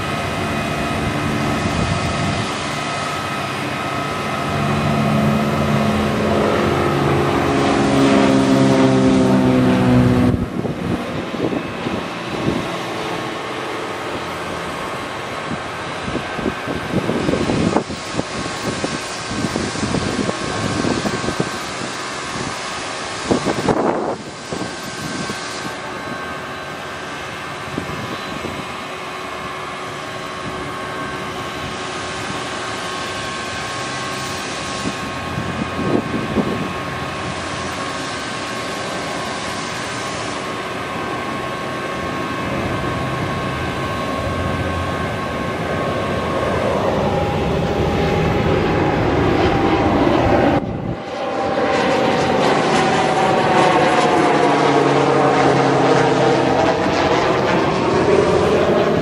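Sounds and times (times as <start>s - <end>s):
hydraulic whine: 0.0s - 59.0s.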